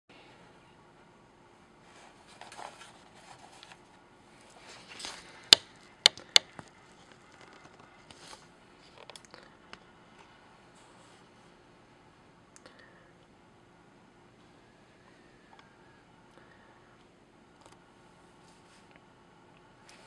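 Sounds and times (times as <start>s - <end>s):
rustling and handling noise: 1.7s - 11.6s.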